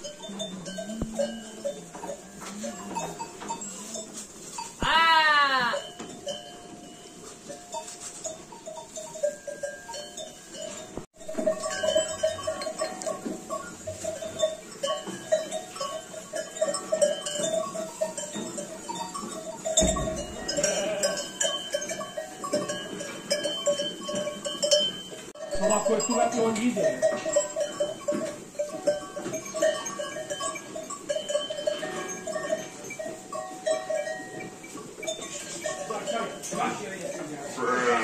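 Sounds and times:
small bells jangling: 0.0 - 37.8
sheep bleating: 4.8 - 5.9, 20.4 - 21.4, 37.5 - 38.0.

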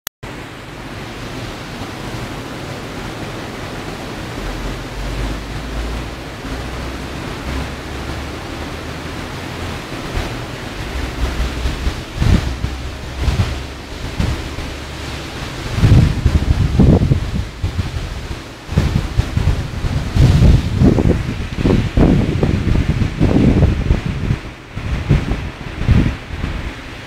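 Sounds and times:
strong wind buffeting microphone: 0.3 - 27.0.

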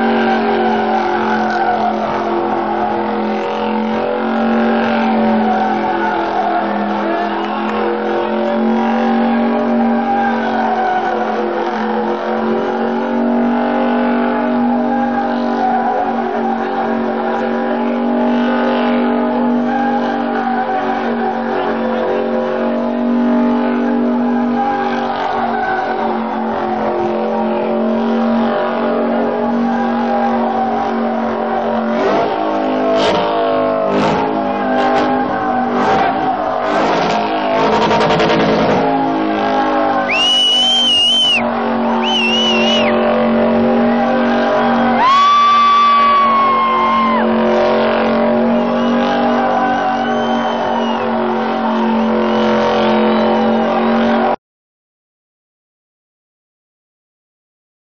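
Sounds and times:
car engine at high revs: 0.0 - 54.4
tyres squealing: 29.4 - 52.1.

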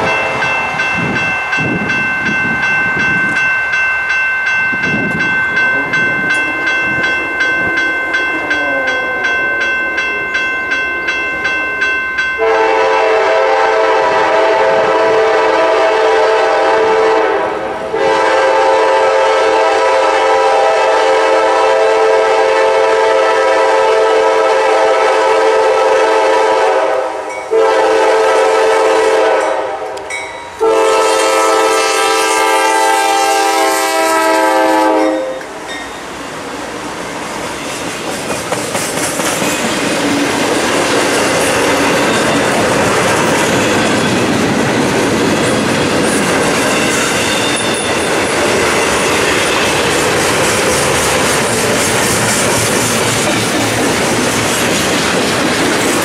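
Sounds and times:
bell ringing rapidly: 0.0 - 12.4
locomotive air horn blasts: 12.4 - 35.6.

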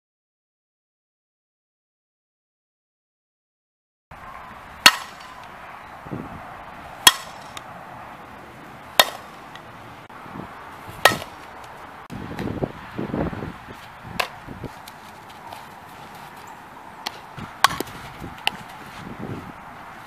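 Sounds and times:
bat striking softball: 4.3 - 6.0, 7.0 - 7.7, 8.8 - 9.8, 10.8 - 12.6, 14.0 - 19.0.

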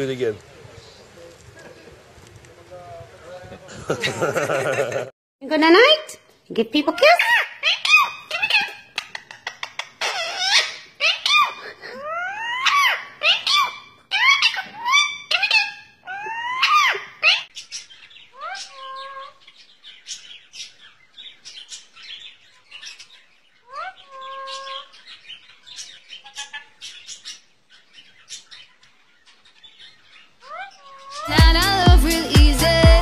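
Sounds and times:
parakeets squeaky calls: 7.0 - 31.9.

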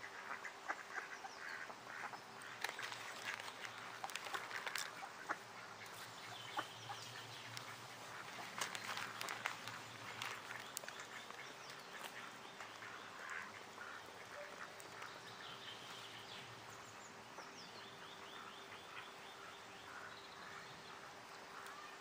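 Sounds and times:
ducks quacking: 0.0 - 16.5
small birds chirping: 0.0 - 22.0.

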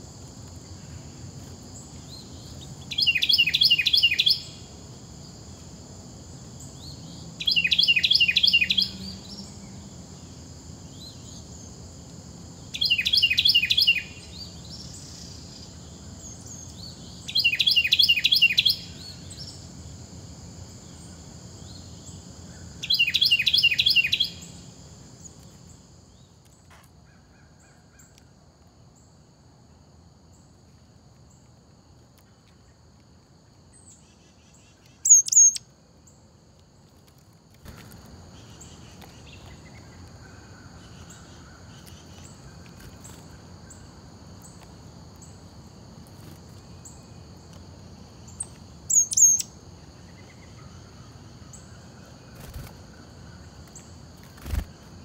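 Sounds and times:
insects droning: 0.0 - 55.0
songbird trilling: 2.9 - 4.6, 7.4 - 9.4, 12.7 - 14.2, 17.2 - 19.2, 22.8 - 24.5, 35.0 - 35.6, 48.3 - 49.6.

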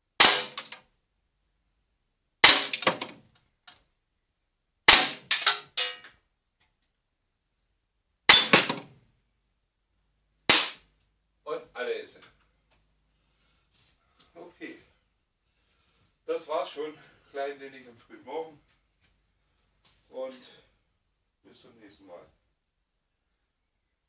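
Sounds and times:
air pistol shots: 0.2 - 0.8, 2.4 - 3.2, 4.9 - 5.7, 8.3 - 8.9, 10.5 - 10.8
metallic clatter of steel target: 0.2 - 0.8, 2.4 - 3.2, 4.9 - 6.1, 8.3 - 8.9.

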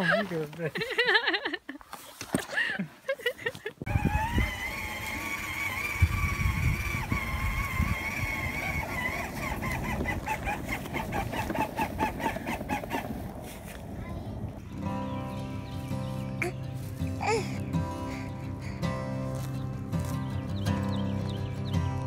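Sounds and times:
toy electric motor whining: 3.9 - 13.1
child's voice: 13.9 - 14.6.

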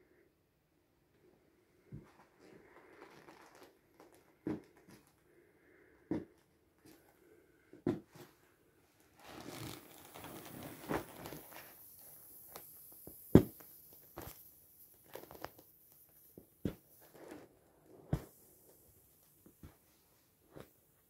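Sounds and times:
vinyl rubbing and rustling: 1.9 - 5.2, 7.9 - 21.0.

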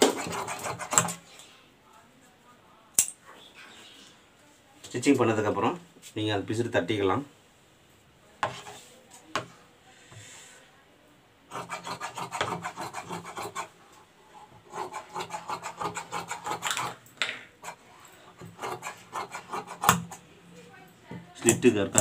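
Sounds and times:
shears snipping fabric: 0.0 - 1.2, 18.4 - 20.2.

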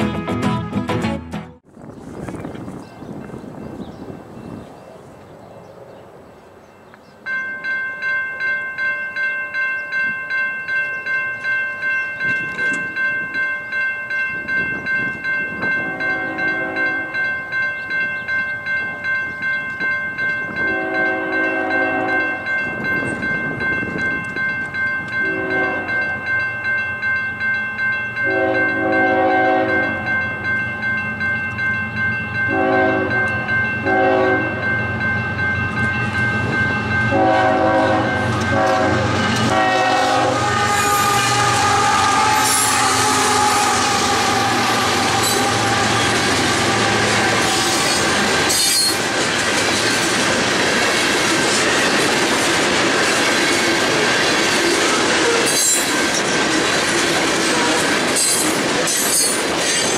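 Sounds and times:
rail and wheel noise: 1.6 - 59.9
crossing bell ringing: 6.6 - 59.9
locomotive air horn blasts: 15.7 - 17.2, 20.6 - 22.4, 25.2 - 26.0, 28.2 - 30.1, 32.5 - 34.6, 37.1 - 49.0
locomotive engine rumble: 32.2 - 55.4.

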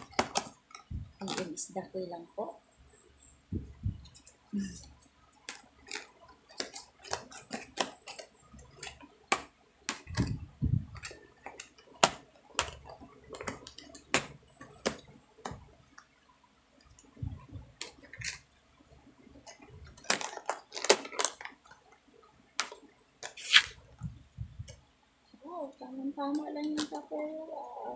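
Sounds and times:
soft low thumps: 0.9 - 1.2, 3.5 - 4.8, 10.1 - 11.0, 17.1 - 17.8, 23.9 - 24.8.

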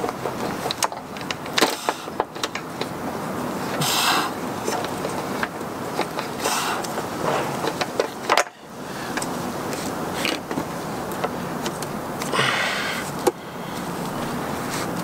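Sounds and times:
solar panel clicking and knocking: 0.0 - 3.1, 4.6 - 12.3
outdoor background noise: 0.0 - 15.0.

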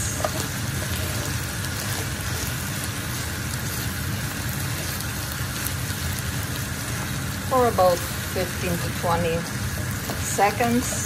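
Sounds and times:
meat sizzling in frying pan: 0.0 - 11.0
wooden spatula stirring: 0.1 - 3.8.

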